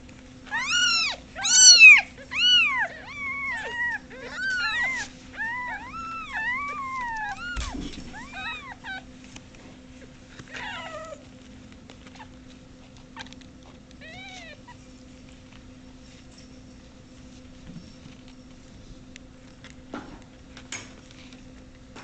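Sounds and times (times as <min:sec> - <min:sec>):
kittens meowing: 0:00.4 - 0:09.1, 0:14.0 - 0:14.8.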